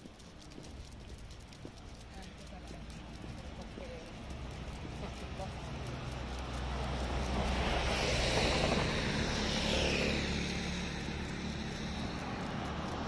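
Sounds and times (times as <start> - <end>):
vehicle driving past: 4.2 - 13.0.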